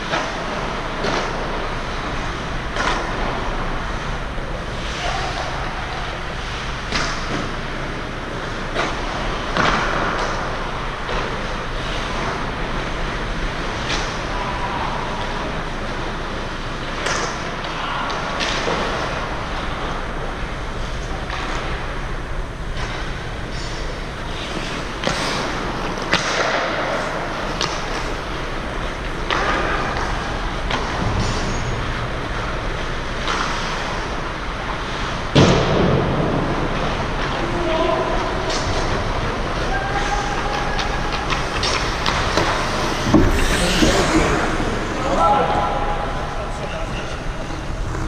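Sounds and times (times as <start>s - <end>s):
hockey sticks and puck clacking: 0.0s - 22.1s, 22.8s - 36.0s, 36.8s - 46.4s
skate blades scraping on ice: 40.0s - 45.2s
rink noise: 40.4s - 46.6s
loud bang: 41.5s - 46.7s.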